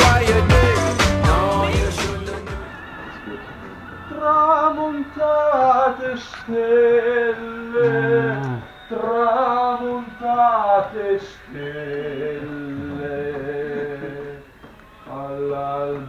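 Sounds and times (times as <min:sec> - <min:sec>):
person singing long held phrases: 0:04.1 - 0:14.4.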